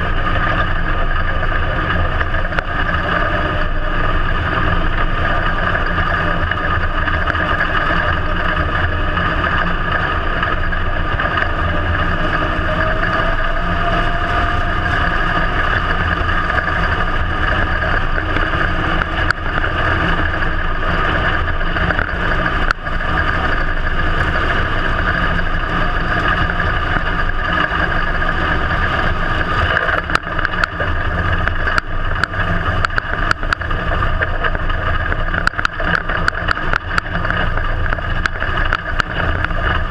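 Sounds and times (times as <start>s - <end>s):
race car engine running: 0.0s - 39.9s
sharp clicks and knocks: 0.0s - 39.9s.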